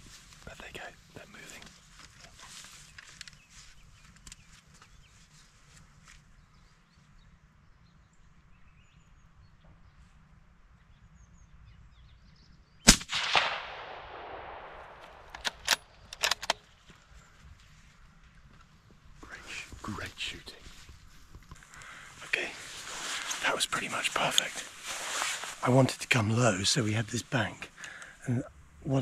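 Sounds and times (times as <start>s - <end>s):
suppressed rifle shot with echo: 12.8s - 16.7s
rifle bolt clicks: 12.9s - 16.6s.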